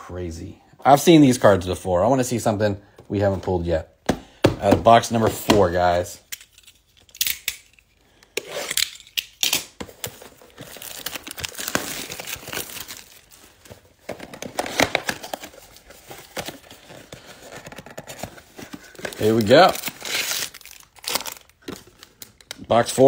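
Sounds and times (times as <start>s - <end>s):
plastic wrap crinkling: 9.6s - 22.7s.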